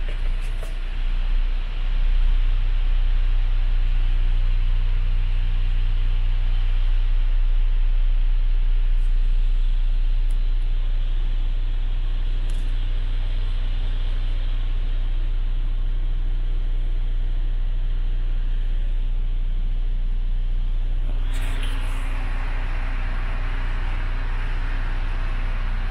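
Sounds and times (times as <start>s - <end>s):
diesel engine idling: 21.0s - 25.9s.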